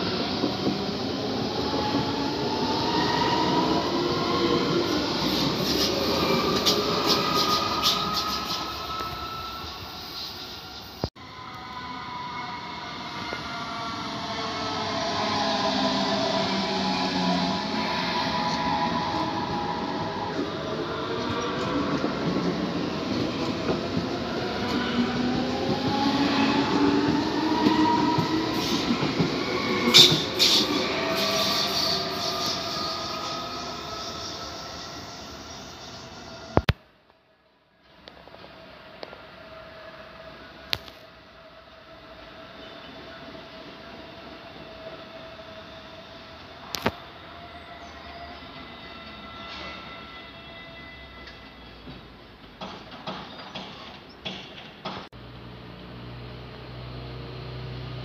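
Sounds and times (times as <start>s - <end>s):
train rumbling past: 0.0s - 36.6s
wheel squeals and clicks: 5.3s - 11.0s.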